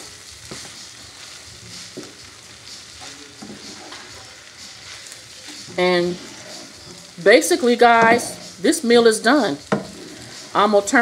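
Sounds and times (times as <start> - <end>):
food sizzling in a skillet: 0.0 - 11.0
wooden spoon stirring: 3.0 - 8.9, 9.6 - 10.8.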